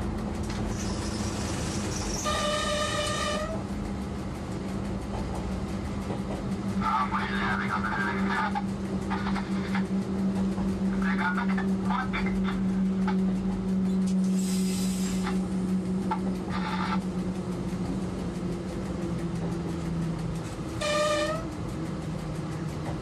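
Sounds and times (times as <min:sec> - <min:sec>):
diesel locomotive engine humming: 0:00.0 - 0:23.0
train horn blast: 0:02.2 - 0:03.6, 0:20.8 - 0:21.6
brief hissing bursts: 0:14.3 - 0:15.2.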